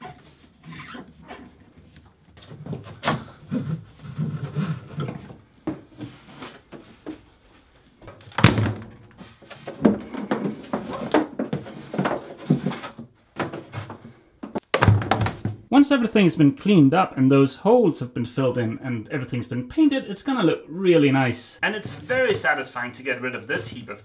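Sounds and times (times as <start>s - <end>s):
hoses scraping and knocking: 0.0s - 15.5s, 21.6s - 22.6s.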